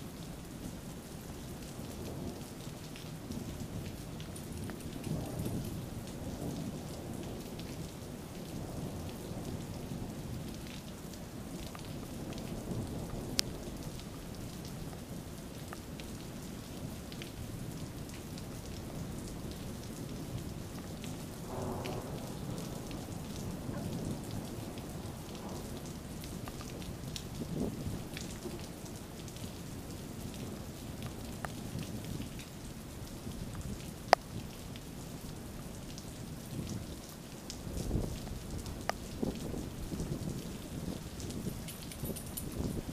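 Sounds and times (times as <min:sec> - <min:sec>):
rain pattering: 0:00.0 - 0:42.9
thunder rumbling: 0:18.9 - 0:28.9.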